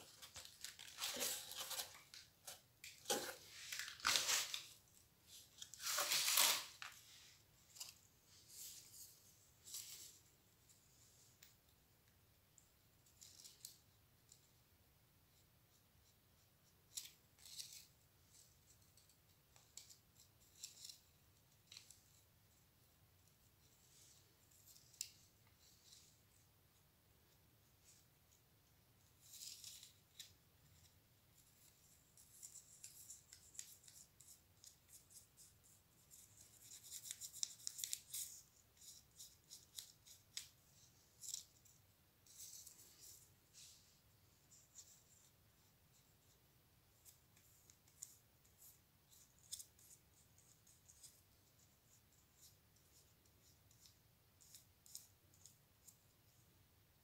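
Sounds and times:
paper and cardboard rustling: 0.0 - 10.2.

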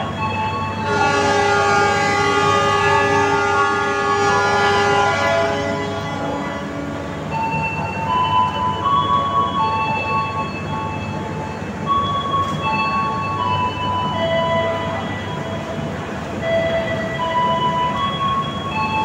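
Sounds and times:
locomotive horn blast: 0.8 - 7.3.

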